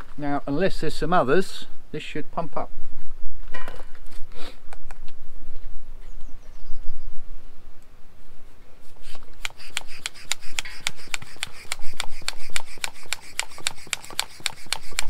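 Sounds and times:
hand bicycle pump strokes: 9.0 - 15.0.

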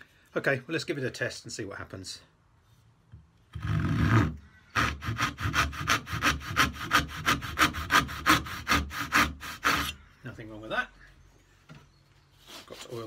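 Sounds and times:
hand saw rasping through wood: 3.6 - 10.0.

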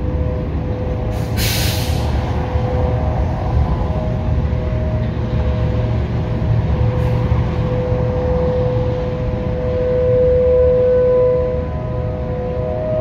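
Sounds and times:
distant warning sirens: 0.0 - 13.0
heavy traffic rumble: 0.0 - 13.0.

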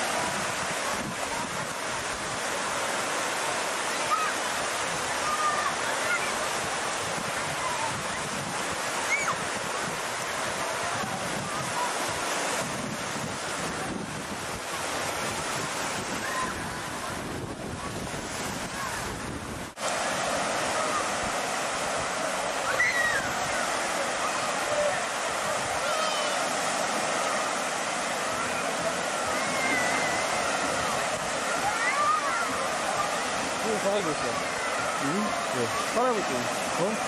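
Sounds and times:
wind buffeting microphone: 0.0 - 2.6, 6.4 - 25.8
waves breaking over shallow water: 0.0 - 37.0
distant children shrieking: 5.2 - 6.4, 9.0 - 9.5, 16.2 - 16.8, 22.6 - 26.6, 28.3 - 33.3.

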